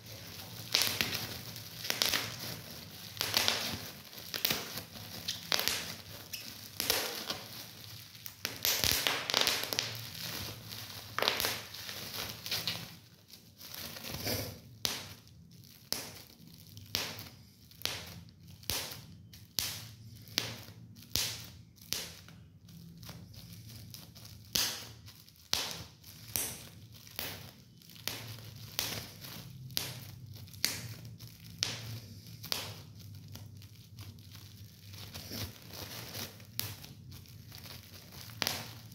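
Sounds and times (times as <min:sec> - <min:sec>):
bubble wrap crinkling: 0:00.0 - 0:38.9
bubble wrap popping: 0:00.0 - 0:38.9.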